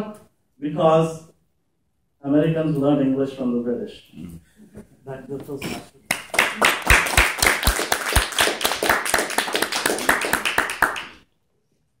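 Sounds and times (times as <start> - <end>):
audience applauding: 6.1 - 11.2
loud claps close by: 6.1 - 11.2.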